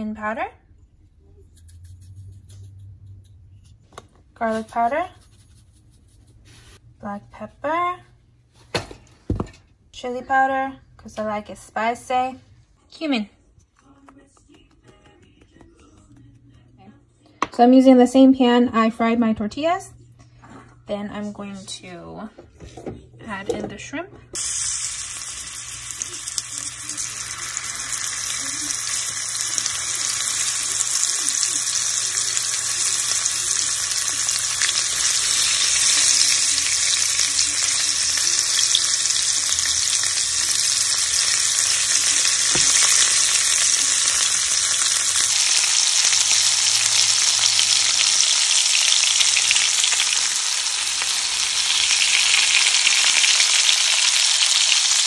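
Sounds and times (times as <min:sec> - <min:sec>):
shrimp sizzling in oil: 0:24.4 - 0:55.0.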